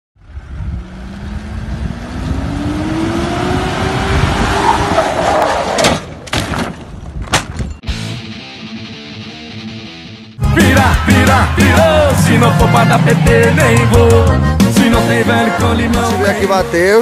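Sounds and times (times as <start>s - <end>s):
suv engine revving: 0.3s - 5.8s, 10.6s - 16.0s.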